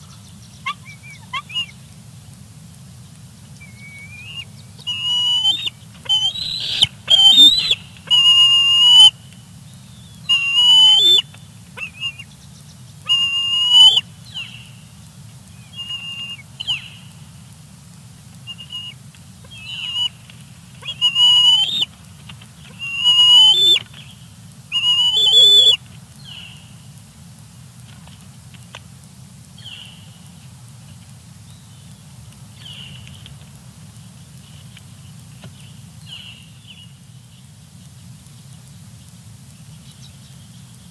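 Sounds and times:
eagle whistled squeals: 3.6s - 9.1s, 10.2s - 12.2s, 13.1s - 14.0s, 15.7s - 16.9s, 20.8s - 21.9s, 22.8s - 23.8s, 24.7s - 25.8s.

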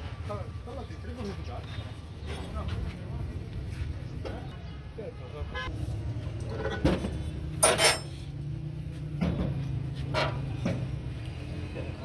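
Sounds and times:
metal cover clanking and knocking: 6.6s - 8.1s.

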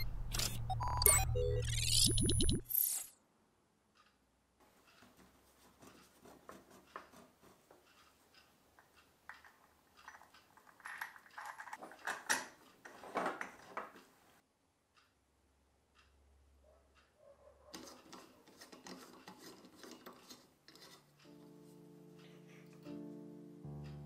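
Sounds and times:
brass fittings clicking and scraping: 4.8s - 14.2s, 17.8s - 21.3s.

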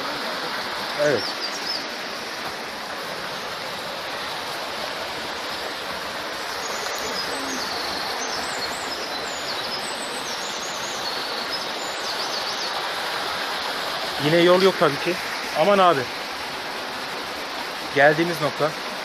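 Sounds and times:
stream rushing over boulders: 0.0s - 19.0s
small birds chirping: 0.9s - 2.3s, 5.2s - 13.4s.

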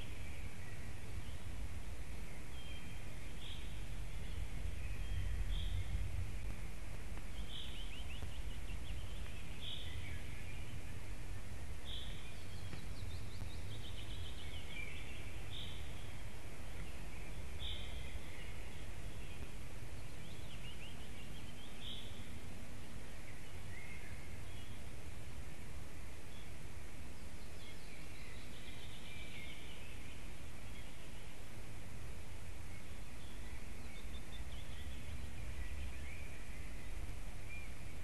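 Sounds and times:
steady low rumble: 0.0s - 29.2s
songbirds calling and singing: 0.0s - 38.0s.

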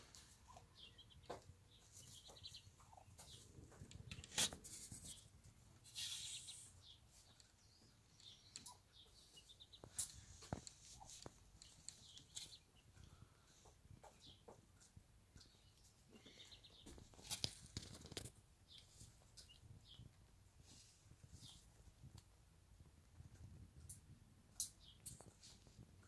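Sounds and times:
chicks peeping: 0.0s - 22.3s
hen clucking softly: 0.2s - 1.4s.

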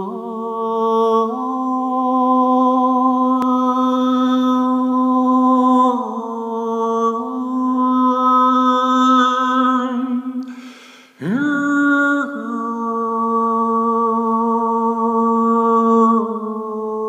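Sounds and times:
breathy hiss: 10.4s - 11.2s.

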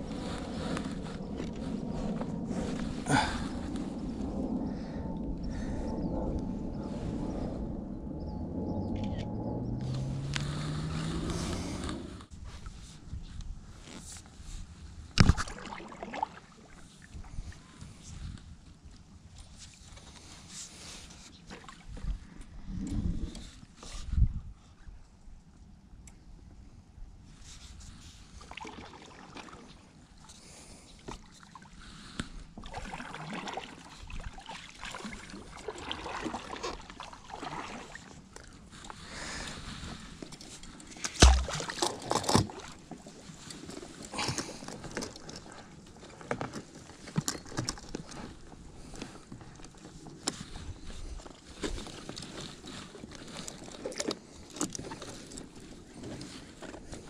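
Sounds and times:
paddle swishing through water: 0.0s - 5.0s, 9.6s - 18.6s, 27.3s - 57.0s
low rumble: 0.0s - 12.6s.

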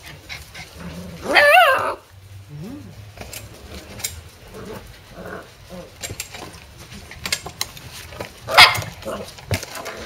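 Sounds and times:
claws clicking and scraping on metal: 3.2s - 4.9s.

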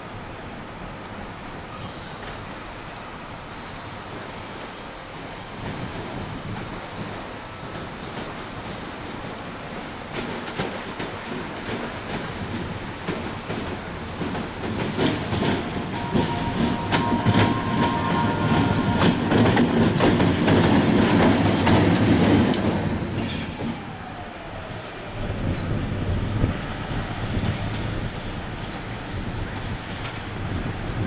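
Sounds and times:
locomotive rumbling: 0.0s - 31.0s
wheels clicking over rail joints: 5.6s - 24.2s.

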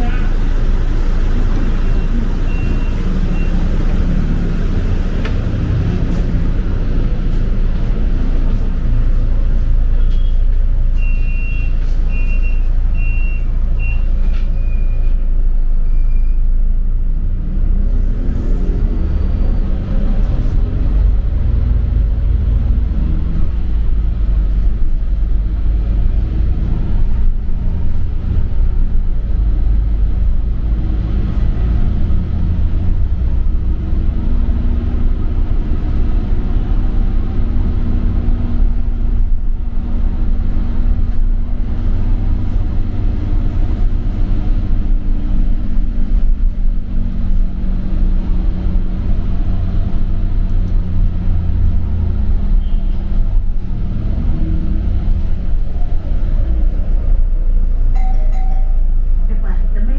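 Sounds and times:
bus engine rumbling: 0.0s - 59.9s
short high beeps: 58.0s - 58.9s.

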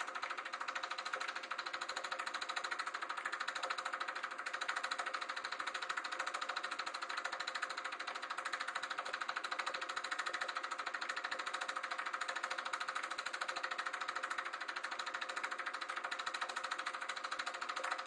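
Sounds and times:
film projector clattering: 0.0s - 18.0s.

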